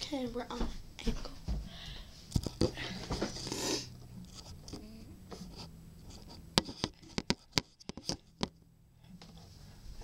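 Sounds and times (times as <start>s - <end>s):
sharp clicks and knocks: 6.2s - 8.6s.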